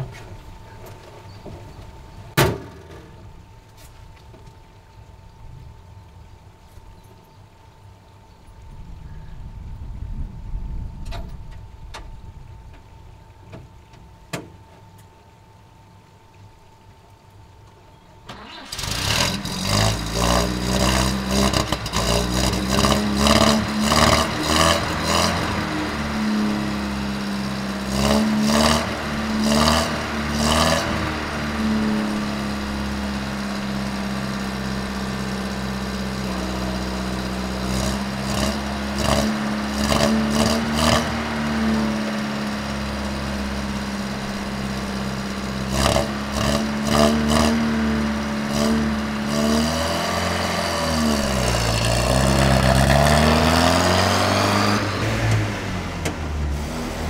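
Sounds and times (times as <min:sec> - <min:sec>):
truck engine starting and revving: 0:18.3 - 0:57.0.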